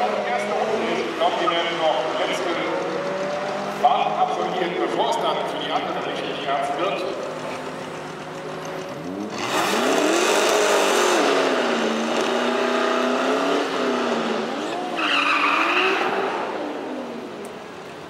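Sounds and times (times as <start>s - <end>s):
drag car engine revving: 0.0s - 17.5s
tyres spinning and screeching: 5.5s - 16.9s.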